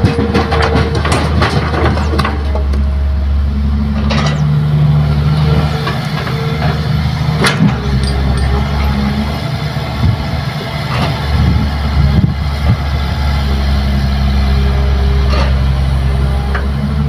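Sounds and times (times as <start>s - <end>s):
soil and rocks dropping into truck: 0.0s - 2.9s
excavator diesel engine running: 0.0s - 17.0s.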